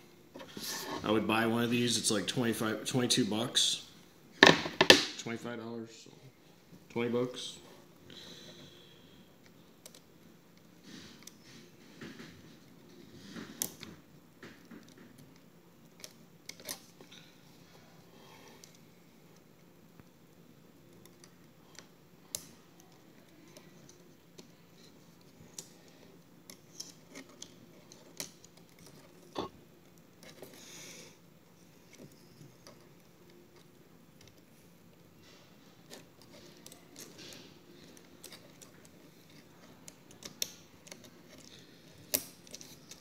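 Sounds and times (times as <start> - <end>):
small clicks taps and scrapes: 20.9 - 30.6, 31.8 - 43.0.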